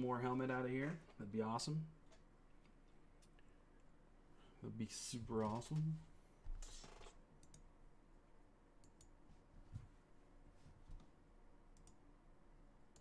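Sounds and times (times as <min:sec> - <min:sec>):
faint clicks: 0:06.6 - 0:07.7.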